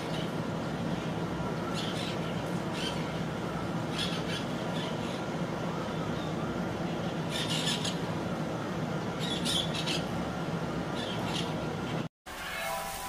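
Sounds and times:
steady low hum: 0:00.0 - 0:12.1
parakeets squawking: 0:07.3 - 0:08.0.

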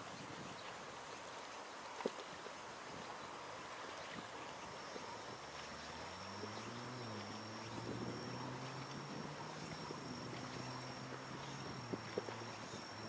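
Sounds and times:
distant motorboat engine drone: 0:00.0 - 0:13.0
small waves lapping on raft: 0:00.0 - 0:13.0.

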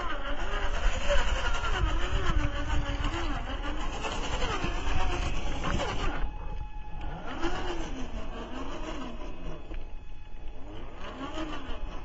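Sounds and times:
electric motor whining: 0:00.0 - 0:12.0.

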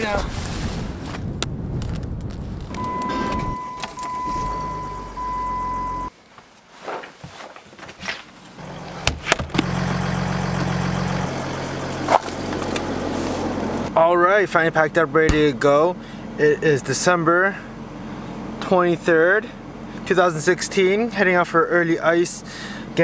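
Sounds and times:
low hum: 0:00.4 - 0:06.1
electronic beep tone: 0:02.7 - 0:06.1
car engine idling: 0:02.8 - 0:06.1, 0:08.6 - 0:21.6.

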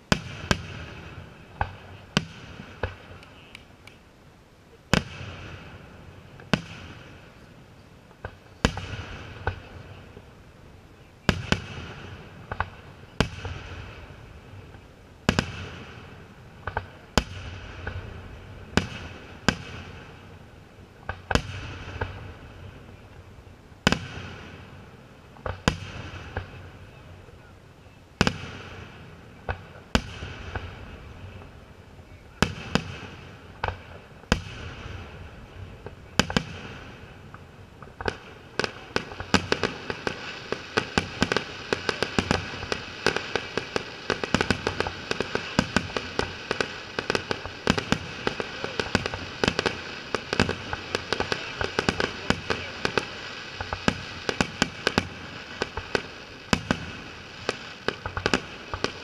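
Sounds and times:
firework shells bursting: 0:35.8 - 0:59.0.

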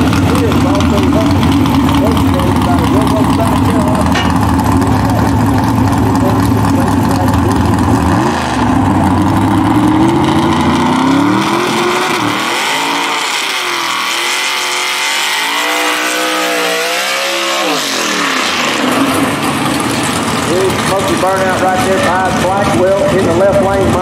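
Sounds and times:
drag car engine revving: 0:00.0 - 0:24.0.

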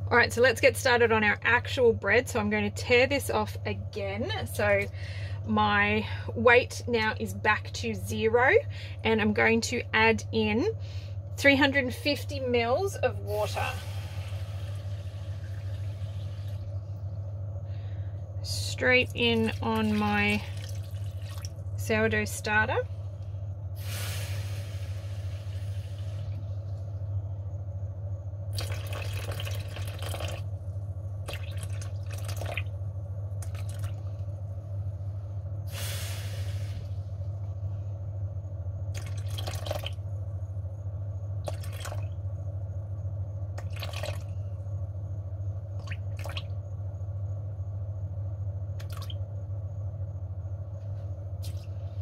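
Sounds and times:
low hum: 0:00.0 - 0:52.0
water pouring into plastic bowl: 0:19.4 - 0:21.7, 0:28.5 - 0:30.5, 0:31.2 - 0:32.7, 0:33.4 - 0:34.0, 0:39.0 - 0:40.0, 0:41.4 - 0:42.2, 0:43.6 - 0:44.3, 0:45.8 - 0:46.4, 0:48.8 - 0:49.2.

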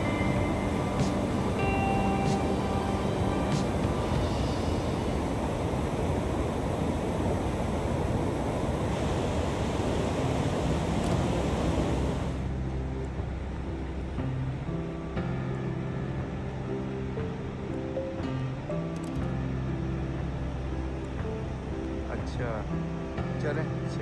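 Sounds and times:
background music: 0:00.0 - 0:06.9, 0:10.1 - 0:24.0
water rushing through spillway: 0:00.0 - 0:12.6.

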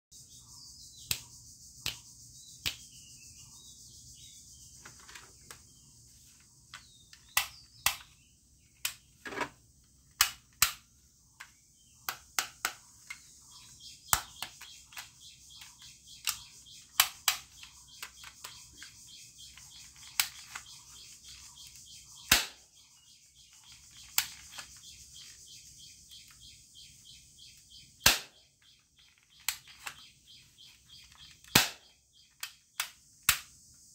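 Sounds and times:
plastic toy gun clicks: 0:07.2 - 0:08.1, 0:10.1 - 0:11.5, 0:14.1 - 0:18.8, 0:31.1 - 0:33.5.

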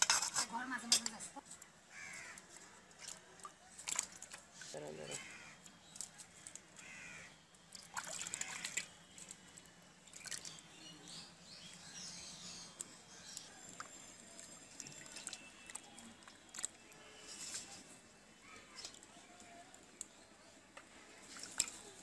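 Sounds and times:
water sloshing in a steel bowl: 0:00.0 - 0:06.9, 0:07.6 - 0:19.4, 0:21.0 - 0:22.0
crows cawing: 0:01.9 - 0:02.5, 0:05.1 - 0:05.6, 0:06.8 - 0:07.4, 0:08.2 - 0:08.8.

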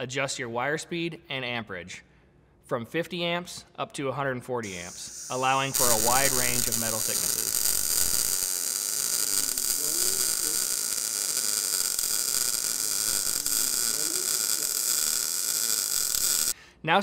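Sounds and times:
welding arc hissing buzz: 0:04.6 - 0:16.6.

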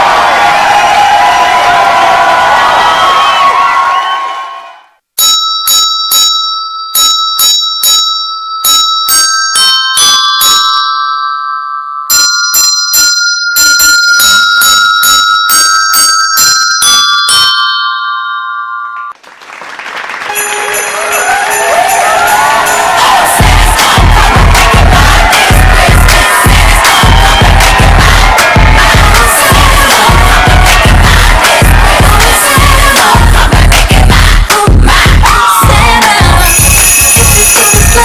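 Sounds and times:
crowd cheering and screaming: 0:00.0 - 0:05.0, 0:20.3 - 0:38.0
bell-like tune: 0:05.2 - 0:19.2, 0:20.3 - 0:33.7, 0:35.7 - 0:38.0.

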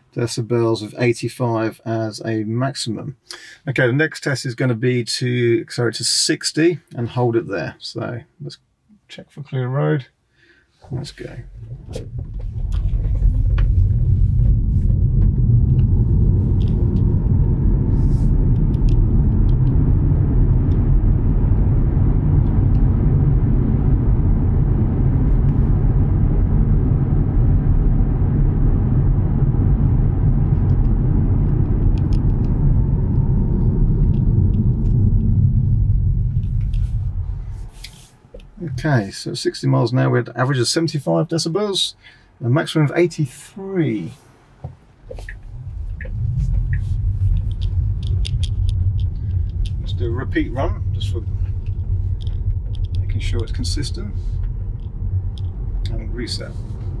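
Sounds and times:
wind noise inside car: 0:10.9 - 0:39.0, 0:44.6 - 0:57.0
tyre rumble on road: 0:11.4 - 0:37.8, 0:44.6 - 0:57.0.

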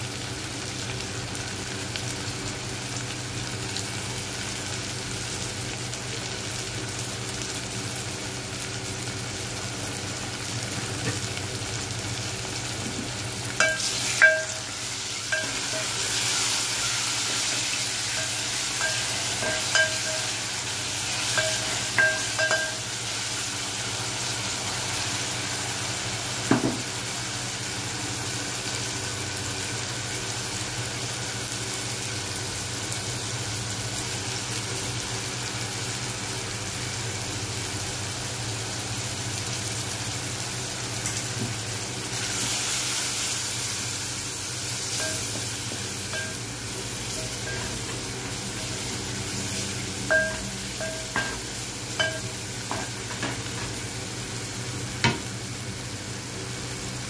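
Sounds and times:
onion and tomato sizzling in oil: 0:00.0 - 0:57.0
spatula clinking against pot: 0:13.6 - 0:14.7, 0:15.3 - 0:16.0, 0:18.1 - 0:20.4, 0:21.2 - 0:22.9, 0:46.1 - 0:46.5, 0:50.1 - 0:51.4, 0:52.0 - 0:52.9.

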